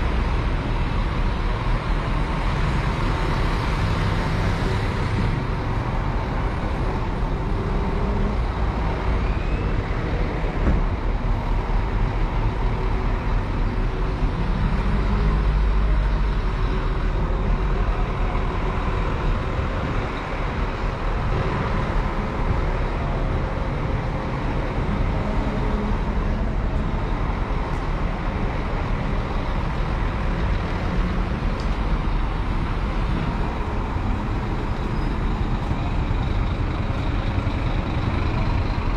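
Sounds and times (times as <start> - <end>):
bus engines running: 0.0 - 38.9.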